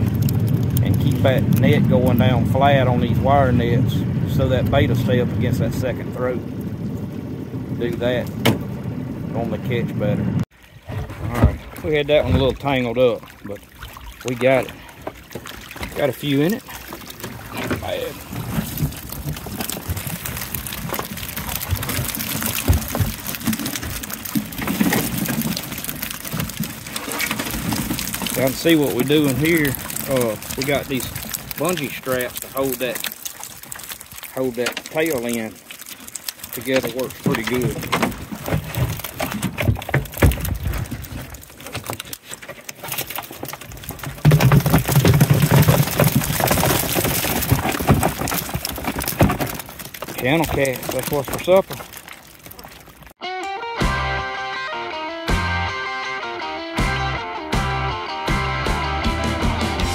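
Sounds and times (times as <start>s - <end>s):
water splashing and dripping: 0.0s - 53.2s
fish flopping in a wire net: 13.2s - 53.2s.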